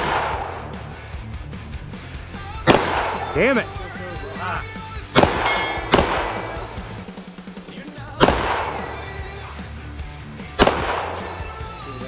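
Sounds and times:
pistol shots with ringing echo: 0:00.0 - 0:00.7, 0:02.7 - 0:03.4, 0:05.2 - 0:06.9, 0:08.2 - 0:09.0, 0:10.6 - 0:11.5.

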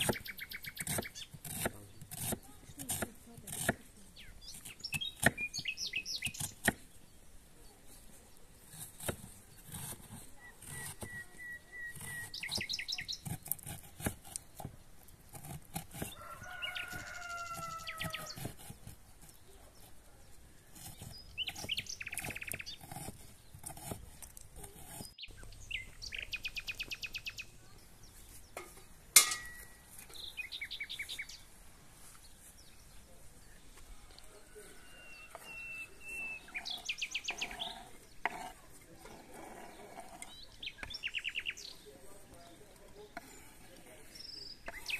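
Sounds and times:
birds chirping: 0:00.0 - 0:44.9
knife chopping on wooden board: 0:00.8 - 0:03.8, 0:04.6 - 0:05.4, 0:08.7 - 0:11.2, 0:13.2 - 0:19.3, 0:20.8 - 0:25.1
chickens calling: 0:16.0 - 0:18.7.

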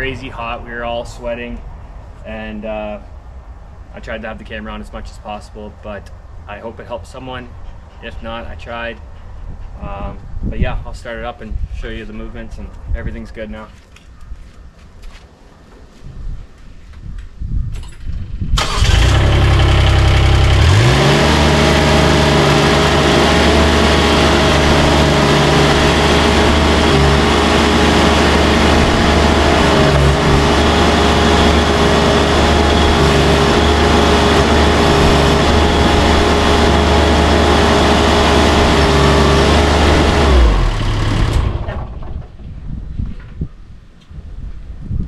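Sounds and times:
loader engine cranking and running: 0:18.5 - 0:42.4.

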